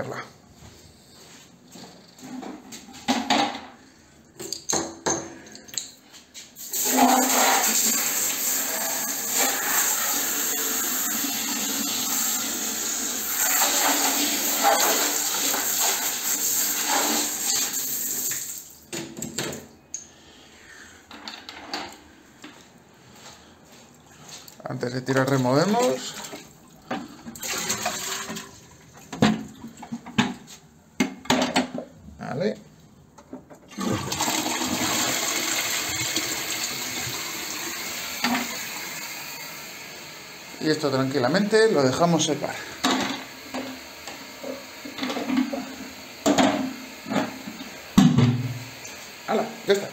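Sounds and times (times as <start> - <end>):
shower spray into plastic tank: 6.3 - 18.8
toilet flushing: 6.6 - 18.9, 25.2 - 29.7, 33.7 - 49.9.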